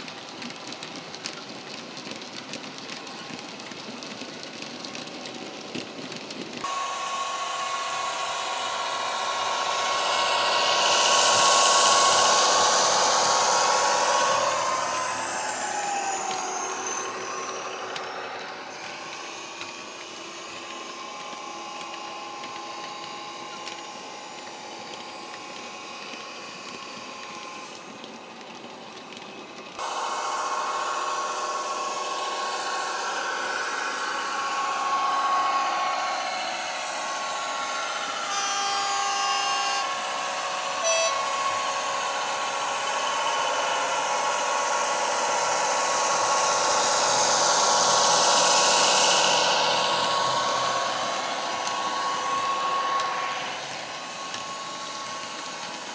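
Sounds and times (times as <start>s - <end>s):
model wagons running on track: 0.0s - 55.9s
diesel engine sound from small speaker: 40.7s - 55.9s.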